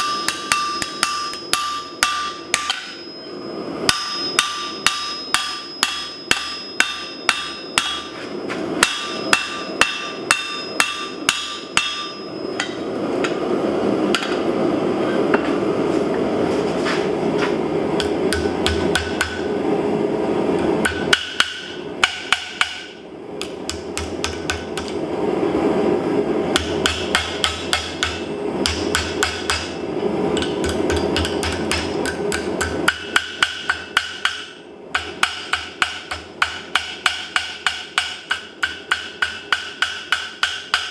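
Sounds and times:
hammer blows on steel anvil: 0.0 - 8.2.

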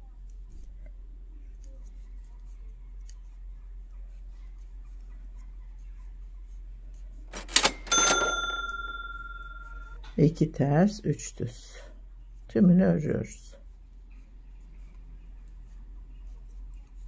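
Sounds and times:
bright bell ding: 7.6 - 10.0.

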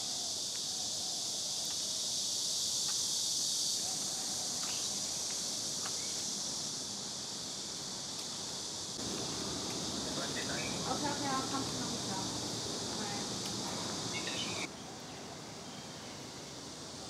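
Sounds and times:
faint ticks and chirps: 0.0 - 10.9
high-pitched insect chorus: 0.0 - 17.0.

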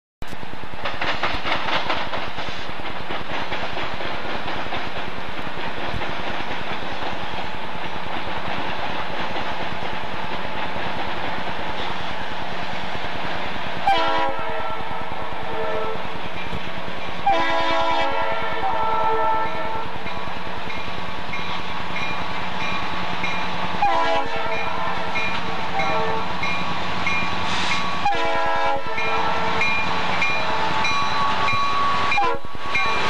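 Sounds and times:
wheels rumbling on rail: 0.2 - 33.0
diesel locomotive engines running: 0.4 - 33.0
locomotive air horn chord: 13.8 - 16.0, 17.2 - 19.9, 23.8 - 26.3, 27.5 - 29.7, 30.5 - 33.0.

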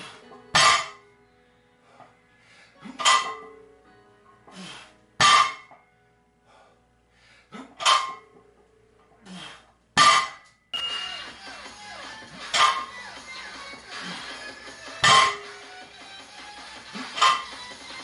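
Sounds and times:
metal plates ringing: 3.0 - 3.6, 10.0 - 11.7, 15.0 - 15.4.

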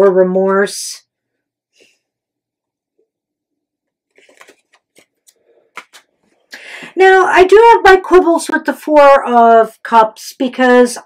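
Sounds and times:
cards rustling: 4.1 - 6.4.

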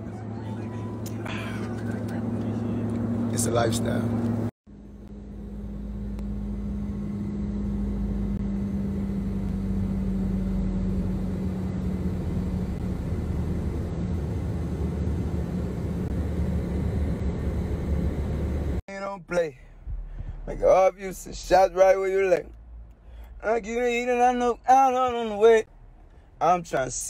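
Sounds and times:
jet cabin engine drone: 0.0 - 18.8.

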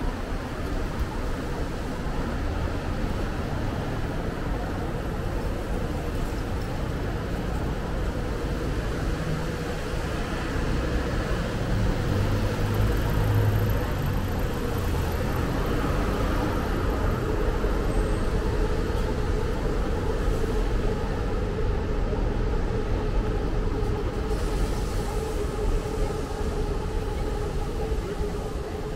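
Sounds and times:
traffic rumble: 0.0 - 28.9
vehicle engine: 5.0 - 21.7.

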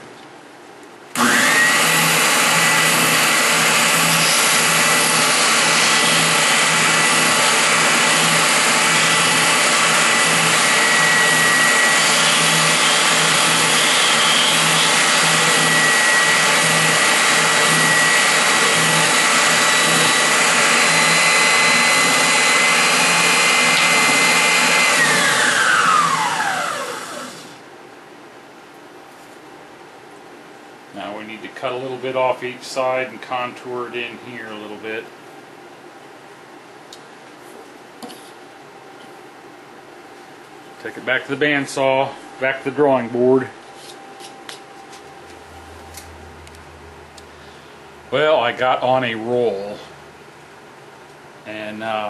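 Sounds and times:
drum sander whining: 1.2 - 27.6
sander winding down: 1.2 - 27.6.

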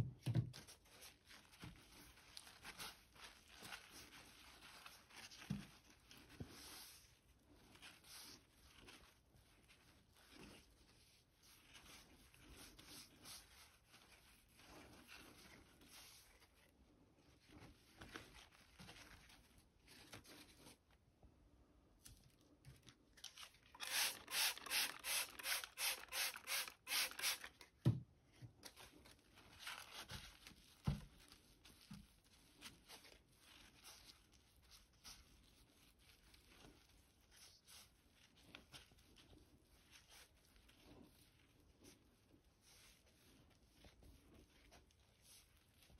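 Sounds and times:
tissue rubbing on wet glass: 0.8 - 20.9, 29.8 - 45.9.

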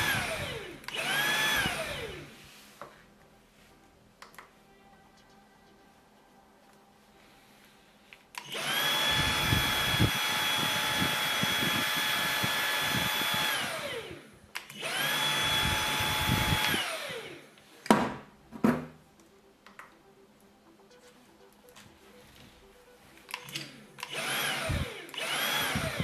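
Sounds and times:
vacuum motor whining: 0.0 - 2.4, 8.4 - 17.6, 23.3 - 26.0.

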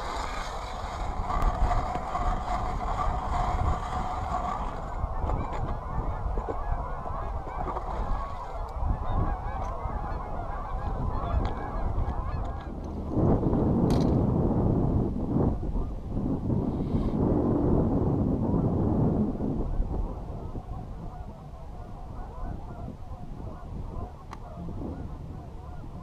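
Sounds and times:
geese honking: 0.0 - 12.9, 20.4 - 26.0.

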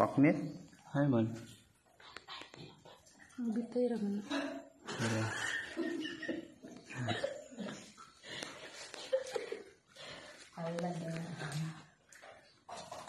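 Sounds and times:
people laughing: 4.8 - 9.8
people talking: 10.6 - 11.8.

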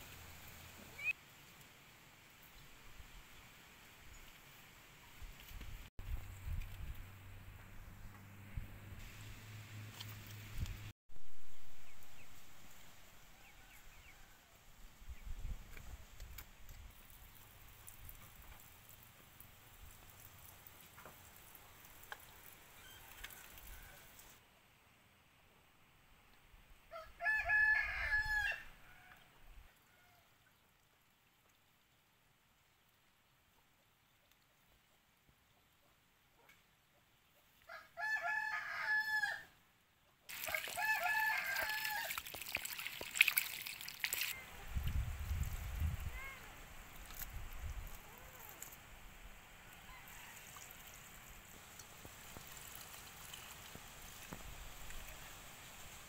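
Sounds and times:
rooster crowing: 26.9 - 29.3, 37.7 - 39.5, 40.3 - 42.3, 49.8 - 50.8
steady hiss with clicks: 51.5 - 56.0.

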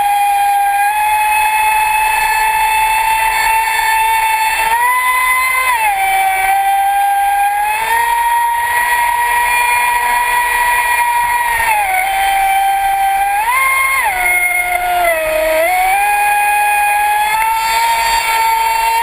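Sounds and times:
electric motor whine: 0.0 - 19.0
wind: 0.0 - 19.0.

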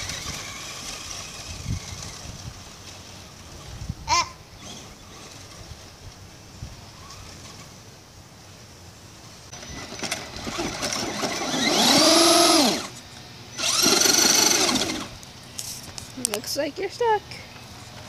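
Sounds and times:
rc truck electric motor whining: 0.0 - 3.7, 4.6 - 5.9, 9.5 - 15.2.

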